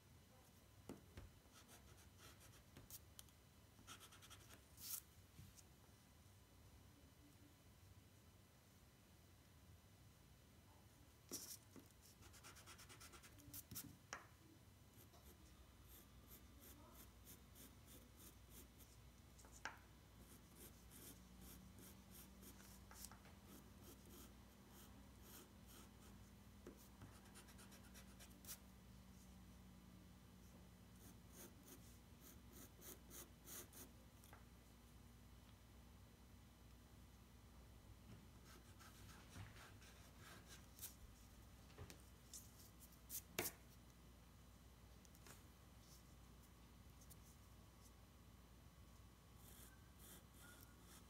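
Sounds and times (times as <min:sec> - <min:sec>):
pencil sketching on paper: 0:11.3 - 0:13.8, 0:14.9 - 0:19.0, 0:20.2 - 0:28.6, 0:31.0 - 0:33.9, 0:49.4 - 0:51.0.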